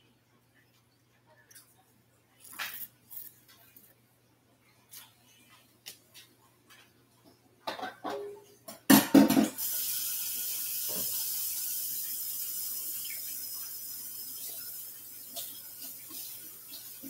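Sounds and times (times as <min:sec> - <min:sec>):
kitchen tap running into sink: 0:09.1 - 0:17.0.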